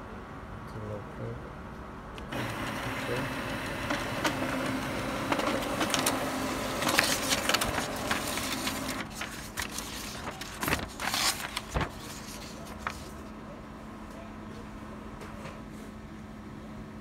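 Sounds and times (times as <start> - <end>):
laser printer printing: 2.3 - 12.8
paper rustling and crackling: 2.4 - 13.4.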